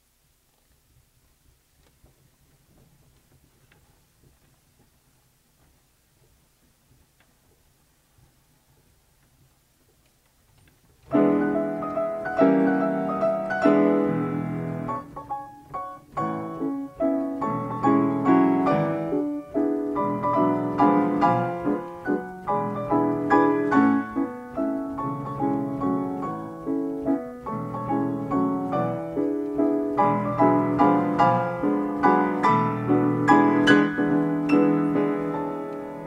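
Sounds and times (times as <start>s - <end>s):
player piano playing: 11.0s - 36.0s.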